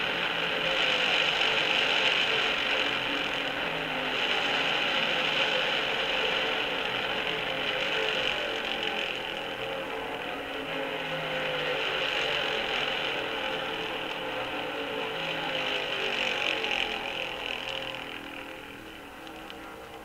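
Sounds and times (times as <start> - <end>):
racing car engines droning: 0.0 - 20.0.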